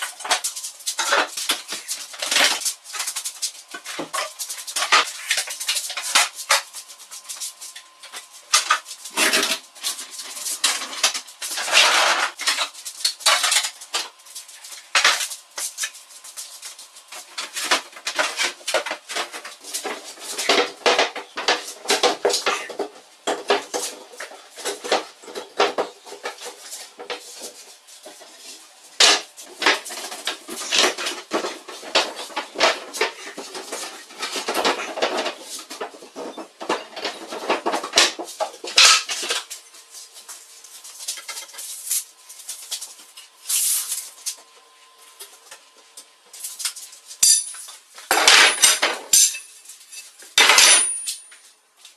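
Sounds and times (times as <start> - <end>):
wooden boards knocking and scraping: 29.0 - 39.5.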